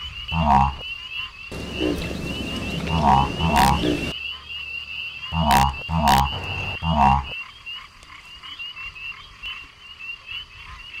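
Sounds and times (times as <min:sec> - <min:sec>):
deep frog croaks: 0:00.3 - 0:00.8, 0:01.5 - 0:04.2, 0:05.3 - 0:07.4
frog chorus of higher calls: 0:01.5 - 0:04.4, 0:05.2 - 0:10.6.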